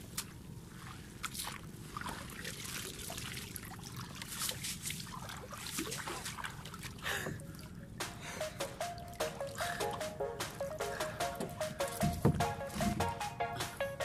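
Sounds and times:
water dripping and splashing from net: 0.0 - 9.8
music: 8.0 - 14.0.

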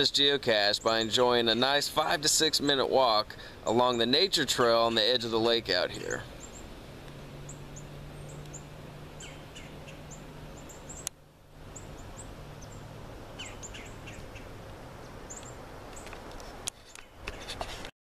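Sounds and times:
background hiss: 0.0 - 17.9
low hum: 0.8 - 16.5
small birds chirping: 4.7 - 17.6.

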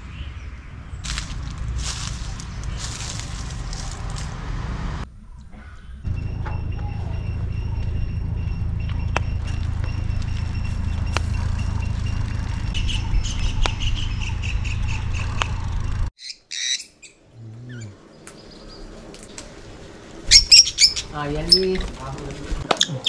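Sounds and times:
birds chirping: 0.0 - 4.3, 5.2 - 23.0
steady low rumble: 0.7 - 16.1
parrots squawking: 16.2 - 18.0, 20.3 - 21.9.

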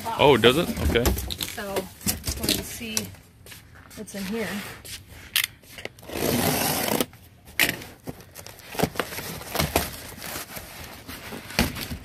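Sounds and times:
cardboard box scraping: 6.0 - 7.1
cardboard rustling: 6.3 - 12.0.

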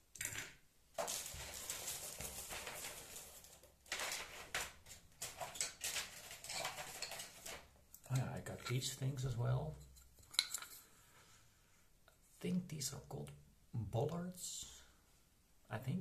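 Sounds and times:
rummaging through parts: 1.0 - 10.9.

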